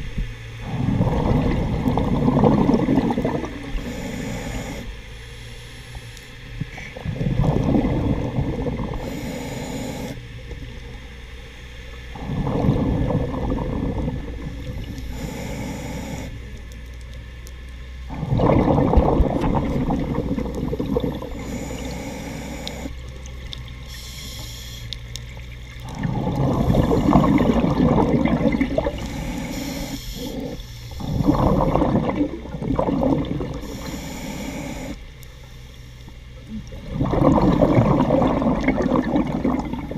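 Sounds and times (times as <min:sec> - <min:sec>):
bubbling exhalation underwater: 0:00.6 - 0:04.3, 0:06.7 - 0:09.2, 0:12.2 - 0:15.2, 0:18.1 - 0:21.9, 0:25.8 - 0:29.5, 0:30.2 - 0:33.7, 0:36.5 - 0:39.9
inhalation hiss: 0:03.7 - 0:07.0, 0:08.9 - 0:10.2, 0:14.8 - 0:16.4, 0:20.7 - 0:22.9, 0:23.8 - 0:25.0, 0:26.0 - 0:27.6, 0:28.8 - 0:31.6, 0:33.5 - 0:36.0.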